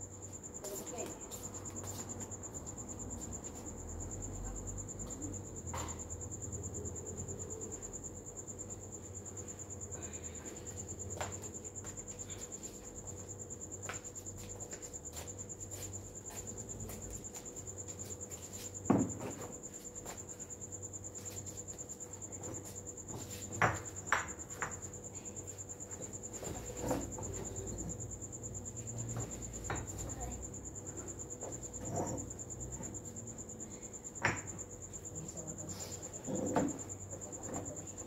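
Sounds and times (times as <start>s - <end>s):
crickets chirping: 0.0s - 38.0s.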